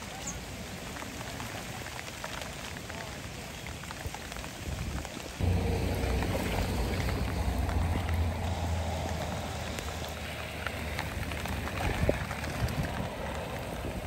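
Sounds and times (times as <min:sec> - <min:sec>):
rain on flowing water: 0:00.0 - 0:14.0
low steady rumble: 0:05.4 - 0:13.2.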